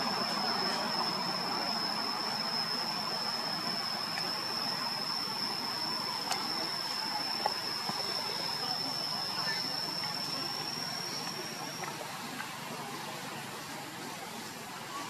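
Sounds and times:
high-pitched whine: 0.0 - 15.0
outdoor background hiss: 0.0 - 15.0
faint click: 6.2 - 6.7.

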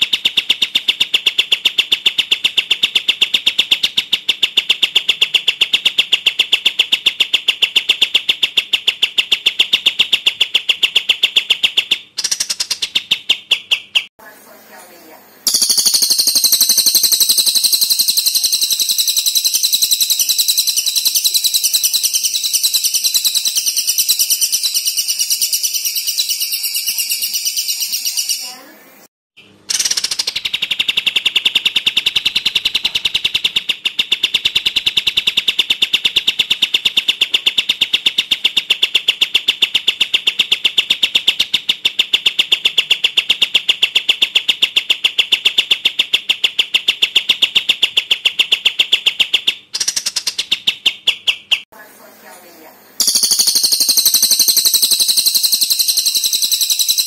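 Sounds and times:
high rattling bird trill: 15.4 - 28.8, 53.0 - 57.0
lower rapid bird trill: 15.5 - 28.7, 53.0 - 57.0.

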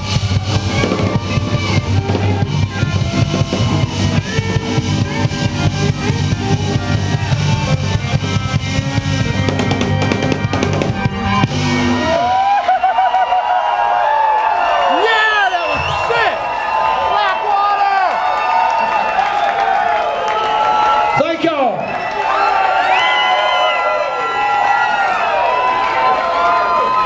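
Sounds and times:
live band playing: 0.0 - 13.0.

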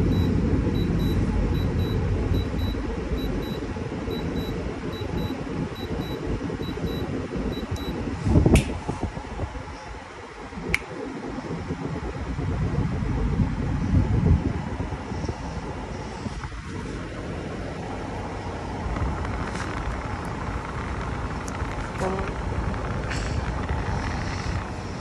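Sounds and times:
control panel beeps: 0.0 - 8.0
air conditioner humming: 0.0 - 25.0.

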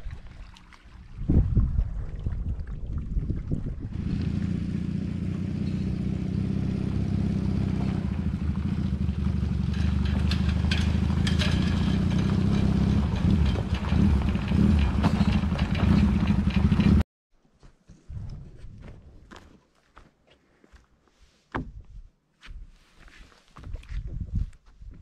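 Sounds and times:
gravel crunching: 3.9 - 17.0
vehicle engine running: 3.9 - 17.0
trailer rattling: 4.0 - 17.0.

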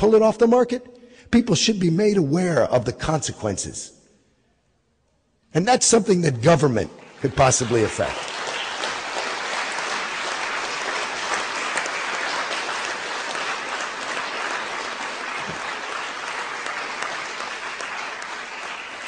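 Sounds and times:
audience applauding: 6.4 - 19.0.

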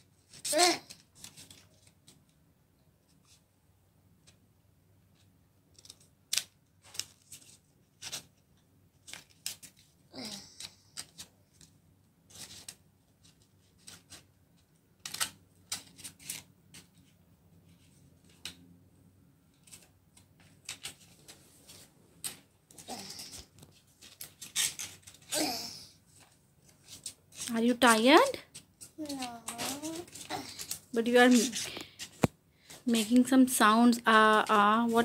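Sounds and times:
scissors snipping paper: 28.5 - 31.7.

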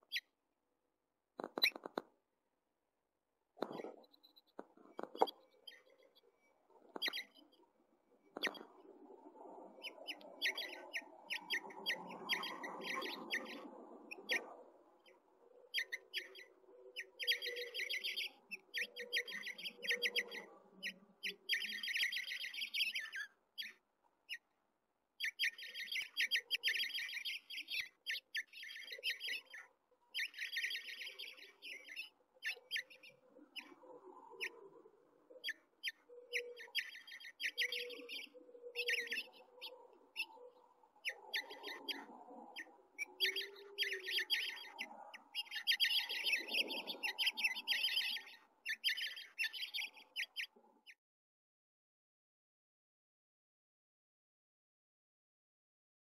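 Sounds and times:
nestlings chirping rapidly: 6.9 - 7.6, 9.8 - 14.4, 15.1 - 24.5, 25.2 - 33.7, 35.4 - 40.4, 41.0 - 50.6.

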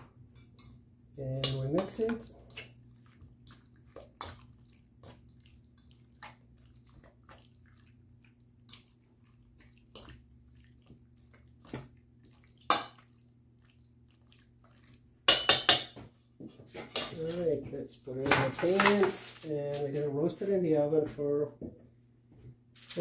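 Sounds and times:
wet squelches of mixing meat: 1.2 - 15.3.

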